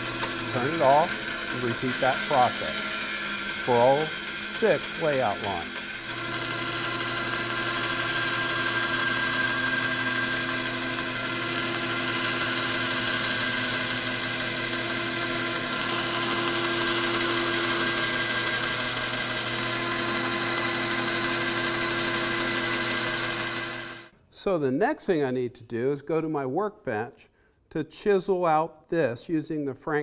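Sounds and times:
bandsaw cutting wood: 0:00.0 - 0:24.1.

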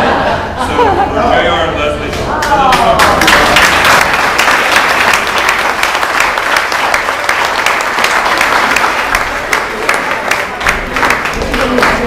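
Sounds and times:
crowd applauding: 0:02.4 - 0:12.0.

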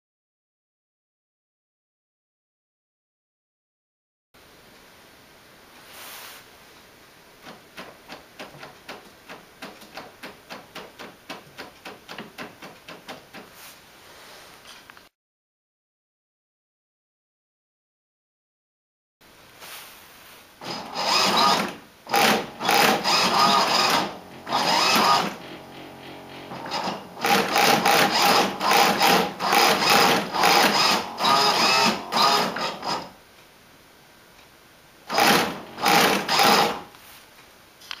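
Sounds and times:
servo whirring in short bursts: 0:20.6 - 0:33.1, 0:35.1 - 0:36.9.

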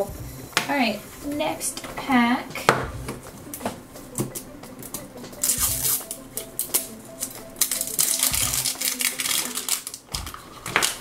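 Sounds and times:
faint music: 0:00.0 - 0:11.0
plastic wrapper crinkling: 0:05.4 - 0:11.0.

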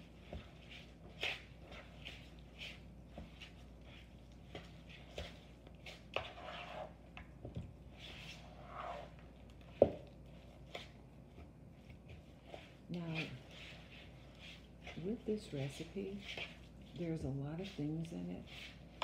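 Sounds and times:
wooden spoon stirring wet mixture: 0:00.0 - 0:19.0.

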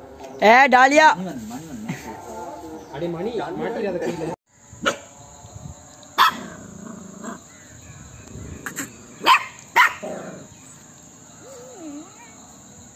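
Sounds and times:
puppy barking: 0:04.8 - 0:05.1, 0:06.2 - 0:06.6, 0:09.2 - 0:10.2.

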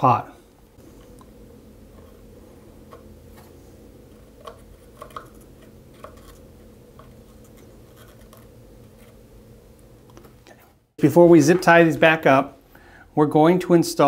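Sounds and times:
steady low hum: 0:00.0 - 0:14.0
soldering iron scratching and ticking: 0:07.0 - 0:09.2.

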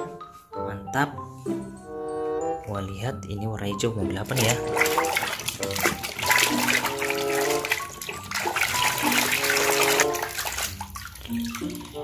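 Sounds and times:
background music melody: 0:00.0 - 0:12.0
water splashing and sloshing: 0:04.1 - 0:12.0.

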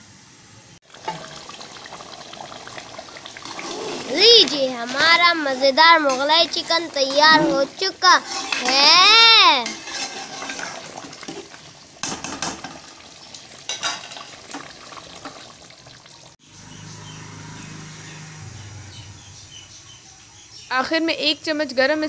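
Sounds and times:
ladle scraping steel pot: 0:03.3 - 0:12.8.

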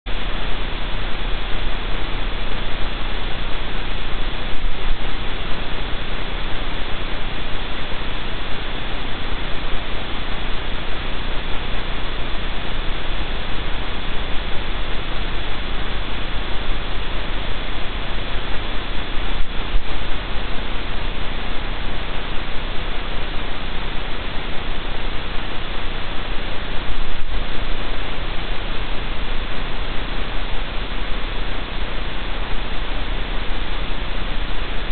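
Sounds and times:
loud static hiss: 0:00.0 - 0:34.9
faint high whine: 0:00.1 - 0:34.9
low mains hum: 0:00.1 - 0:34.9.

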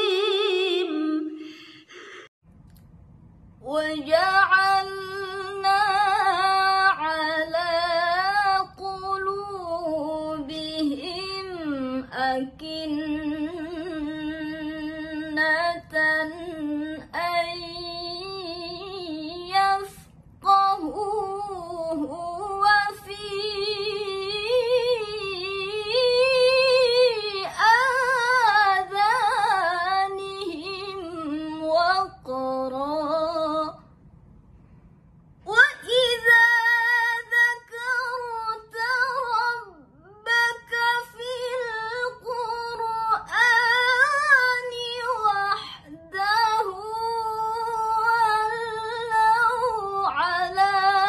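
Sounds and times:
woman reciting melodically: 0:00.0 - 0:02.2, 0:03.6 - 0:33.9, 0:35.4 - 0:51.0
woman breathing: 0:01.3 - 0:02.4.

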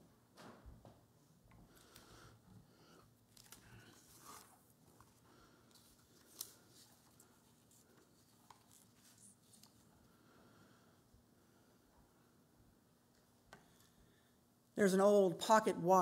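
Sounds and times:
paper rustling: 0:03.3 - 0:09.9.

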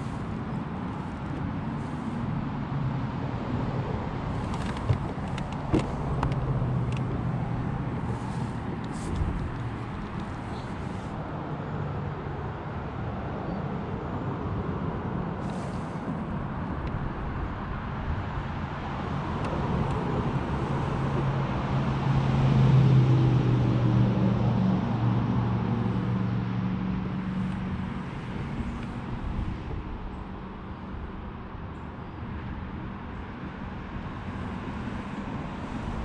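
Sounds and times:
low engine drone passing by: 0:18.9 - 0:36.0.

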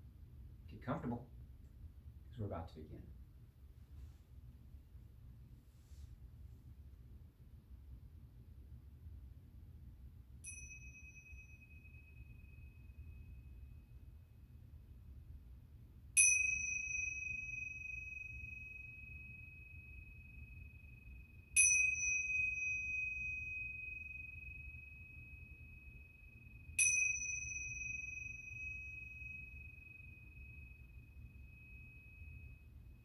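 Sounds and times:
small high-pitched bell ringing: 0:10.4 - 0:14.7, 0:16.2 - 0:33.0.

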